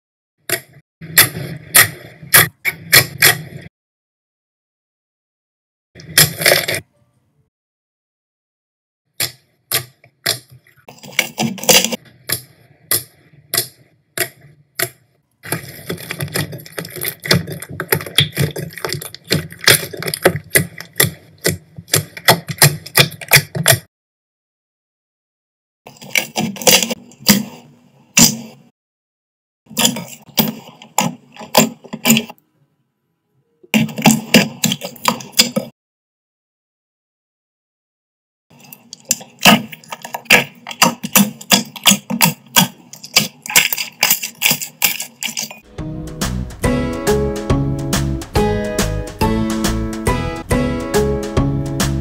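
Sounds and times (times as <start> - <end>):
slime squished by hand: 15.5 - 23.8, 39.0 - 45.5.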